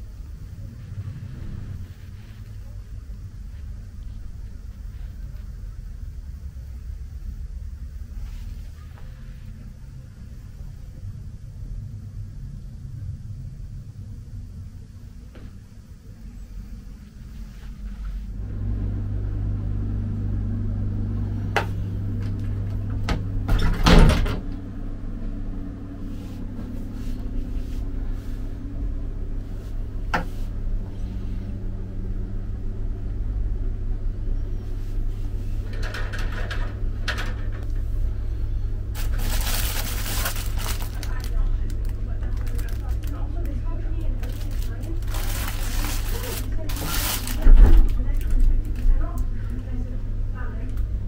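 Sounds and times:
low hum: 0.0s - 51.0s
plastic wrapping crinkling: 38.9s - 49.0s.

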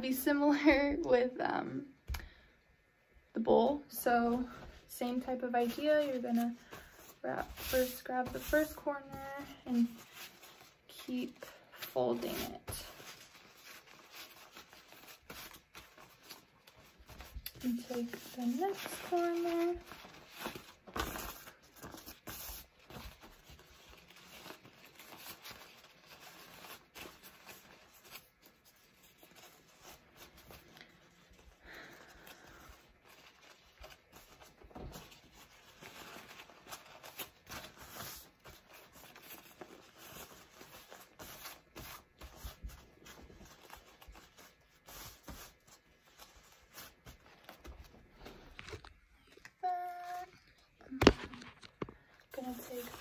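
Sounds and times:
wrap rustling and crinkling: 4.0s - 53.0s.

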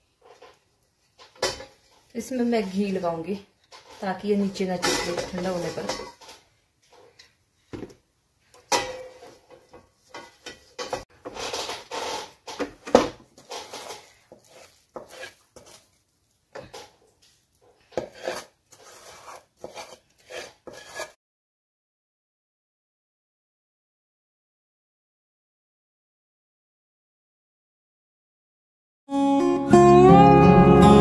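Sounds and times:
steel pans clinking and scraping: 1.2s - 7.2s, 8.6s - 15.7s.

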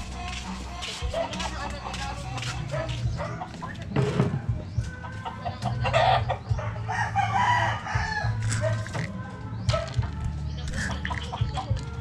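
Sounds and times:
chickens clucking: 0.0s - 12.0s
rooster crowing: 6.9s - 8.7s.

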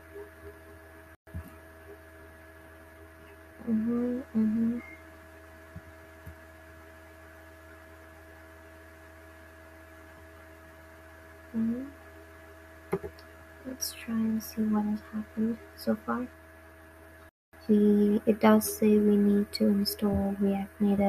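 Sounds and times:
electrical mains hum: 0.0s - 21.0s
person humming: 3.6s - 4.9s, 11.6s - 11.9s.

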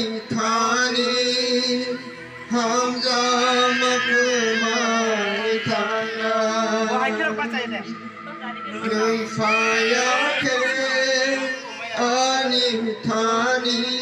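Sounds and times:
toddler crying: 2.9s - 7.1s, 8.8s - 12.8s.

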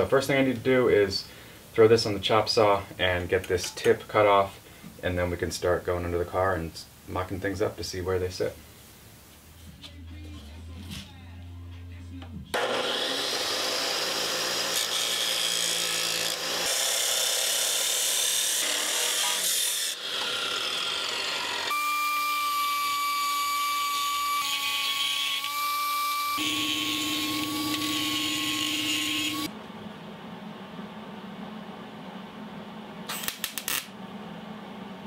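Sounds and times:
chop saw grinding metal: 12.5s - 21.8s
die grinder whining: 12.5s - 21.9s, 26.4s - 29.5s.

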